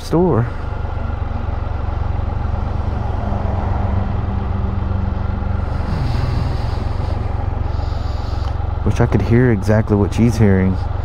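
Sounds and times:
three-wheeler engine running: 0.0s - 11.0s.

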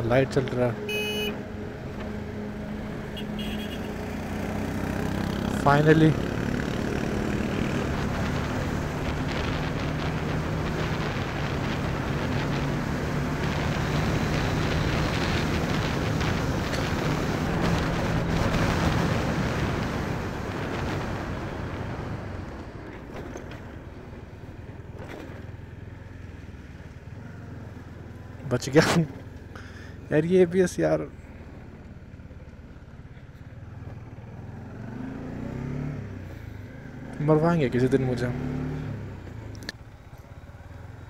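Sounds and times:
motorcycle engine running hard: 2.0s - 23.9s
wind rush: 7.1s - 22.5s.

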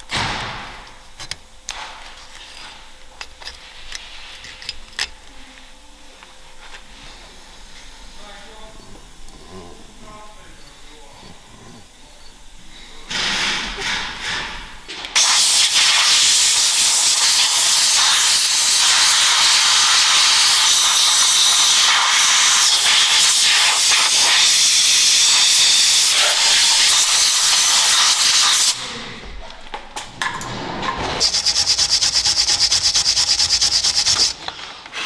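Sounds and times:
compressed air hissing from blow gun: 15.2s - 28.8s, 31.2s - 35.0s.

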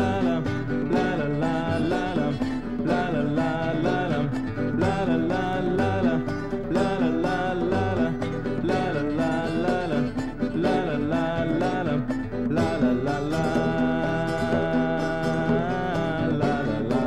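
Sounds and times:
song with plucked strings: 0.0s - 17.0s.

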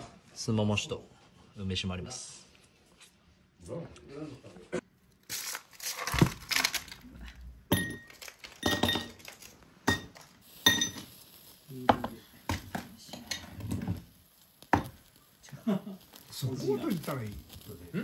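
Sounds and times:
metal tongs clinking on grill: 7.7s - 13.6s.

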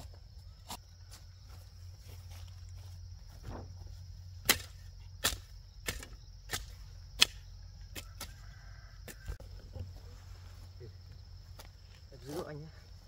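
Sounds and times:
hand tool chopping: 4.4s - 8.4s.

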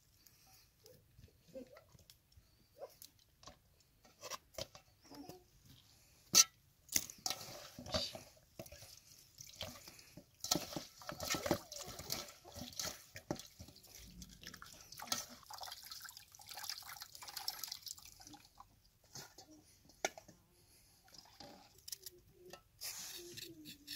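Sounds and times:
water splashing into metal basin: 10.4s - 18.6s.

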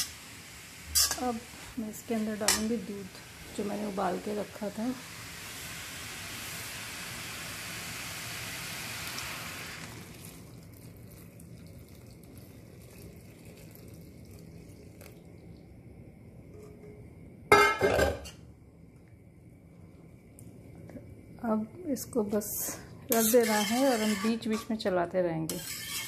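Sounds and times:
carrots sizzling in pan: 0.0s - 11.6s, 22.4s - 26.0s
milk pouring into pan: 8.5s - 15.7s.

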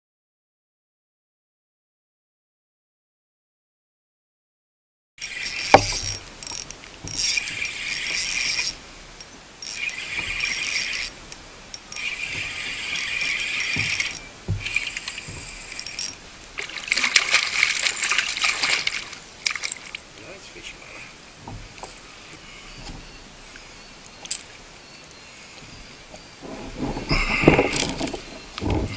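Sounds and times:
fishing reel buzzing: 5.2s - 20.0s.

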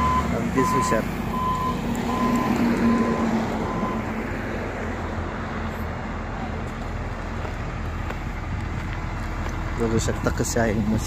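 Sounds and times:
reversing alarm beeping: 0.0s - 4.1s
diesel engine running: 0.0s - 11.0s.

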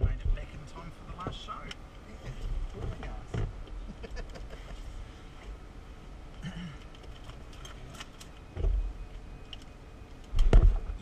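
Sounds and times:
dull low thump: 8.6s - 8.9s, 10.4s - 11.0s
small clicks in cockpit: 9.4s - 10.5s.

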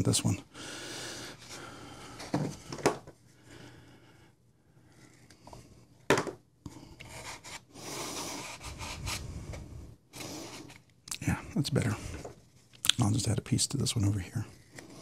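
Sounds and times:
foam rubbing and scraping: 7.2s - 9.4s.

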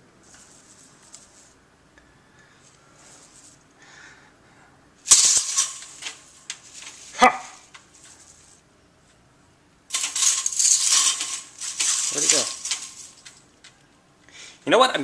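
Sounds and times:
venetian blind slats rattling: 5.1s - 8.6s, 9.9s - 13.8s.

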